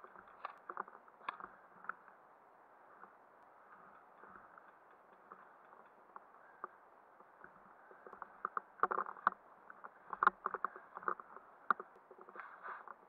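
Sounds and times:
rustling of clothing and leaves: 0:00.0 - 0:13.0
sharp clicks and knocks: 0:03.9 - 0:13.0.

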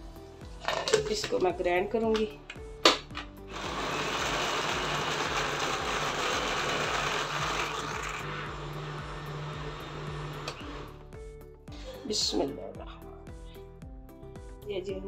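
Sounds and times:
blender running: 0:03.4 - 0:11.0.

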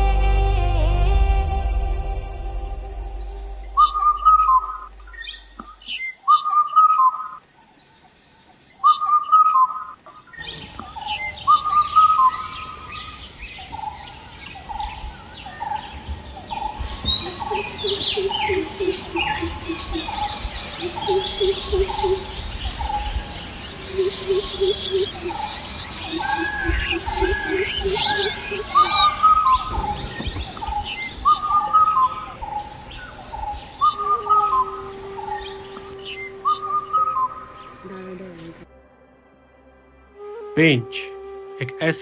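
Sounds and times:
bird low warbling trill: 0:00.0 - 0:07.3, 0:16.5 - 0:38.2
bird whistled call: 0:03.2 - 0:07.4, 0:11.0 - 0:13.2, 0:16.5 - 0:23.3, 0:23.9 - 0:38.0.

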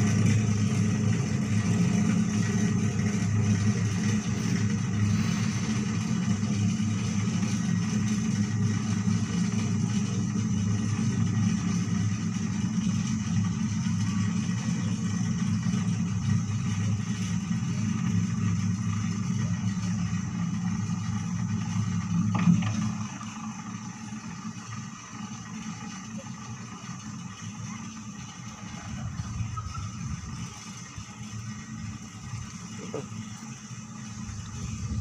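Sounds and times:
chairlift cable drone: 0:00.0 - 0:35.0.

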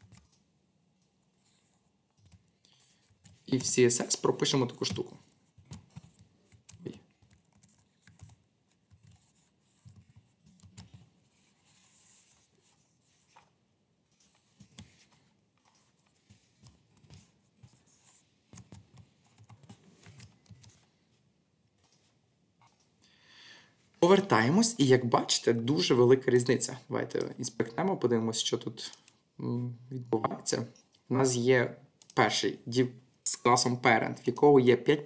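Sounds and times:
computer keyboard typing: 0:00.0 - 0:01.1, 0:02.1 - 0:03.8, 0:04.9 - 0:11.1, 0:18.5 - 0:20.8.

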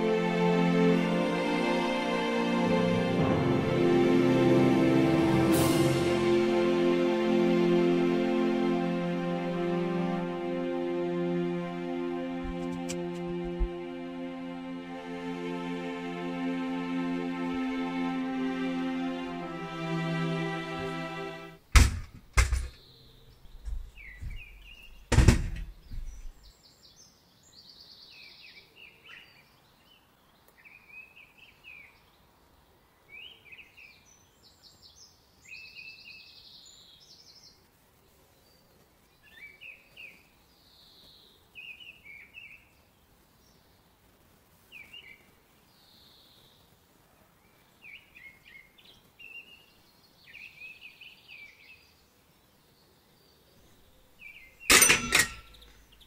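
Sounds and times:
sharp knock: 0:21.8 - 0:22.8, 0:25.1 - 0:26.3
small songbirds chirping: 0:22.4 - 0:56.0.

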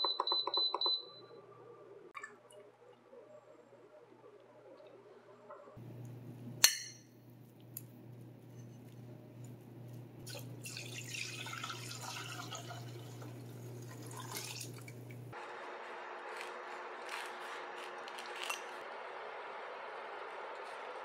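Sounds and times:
low steady hum: 0:01.0 - 0:15.4
broth pouring through strainer: 0:10.2 - 0:14.9.

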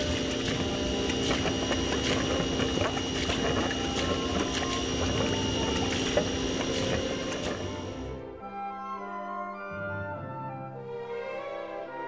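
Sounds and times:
water splashing onto metal grate: 0:00.0 - 0:08.0.

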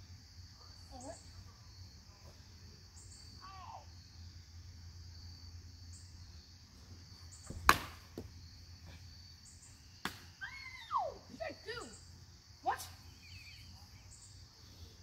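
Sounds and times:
insects chirping: 0:00.0 - 0:15.0
bat cracking a ball: 0:07.4 - 0:08.3, 0:10.0 - 0:10.3.

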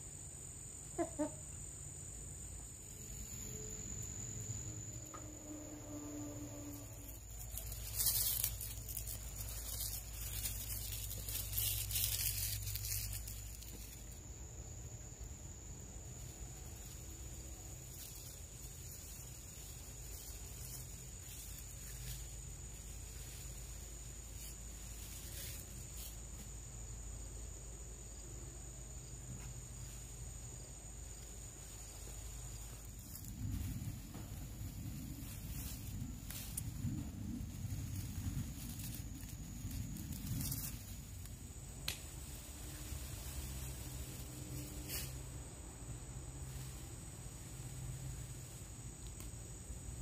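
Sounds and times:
low even hum: 0:00.0 - 0:50.0
high-pitched whine: 0:01.6 - 0:13.9
rustles and knocks: 0:32.1 - 0:43.8.

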